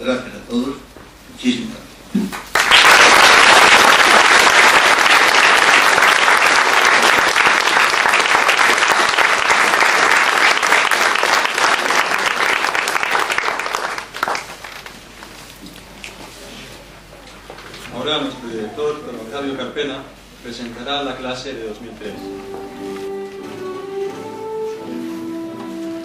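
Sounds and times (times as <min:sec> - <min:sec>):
audience applauding: 0:02.3 - 0:15.0.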